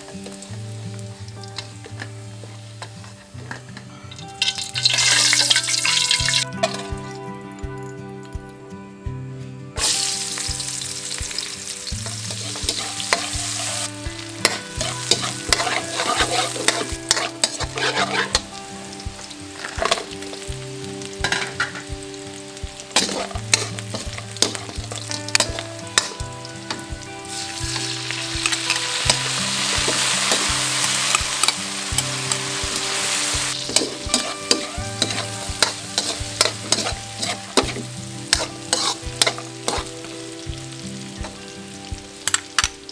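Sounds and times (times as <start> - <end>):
food sizzling in oil in a wok: 0.0 - 7.1, 9.8 - 42.9
metal spatula scraping a pan: 12.0 - 18.6, 23.0 - 30.5, 33.5 - 39.9.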